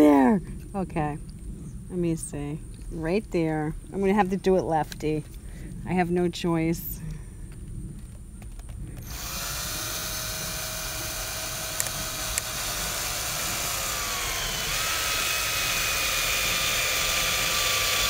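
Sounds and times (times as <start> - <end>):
cordless drill motor whining: 9.0 - 18.0
sharp ticks: 11.6 - 14.0.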